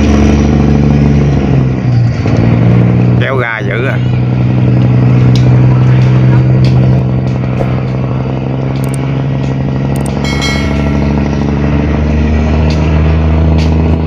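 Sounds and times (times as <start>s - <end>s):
barge engine droning: 0.0s - 14.0s
brief high ringing tone: 10.2s - 11.6s.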